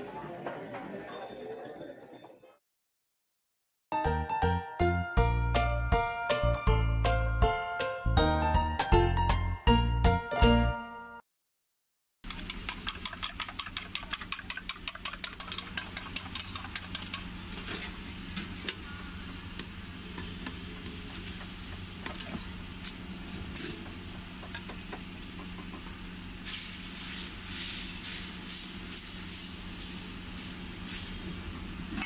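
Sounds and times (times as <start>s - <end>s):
dough sizzling on griddle: 16.4s - 31.8s
metal spatula scraping griddle: 17.5s - 18.7s.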